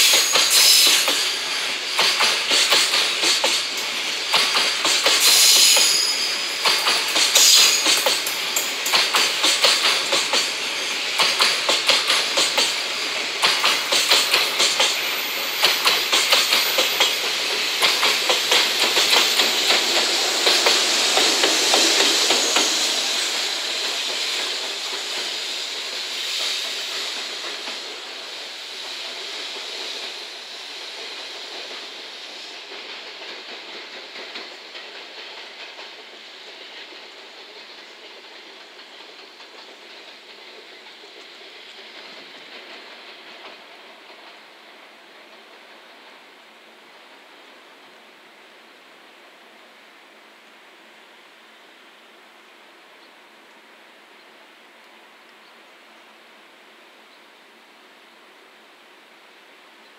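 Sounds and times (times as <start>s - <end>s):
train wheels clicking: 0.0s - 47.4s
electric locomotive hiss: 0.0s - 52.2s.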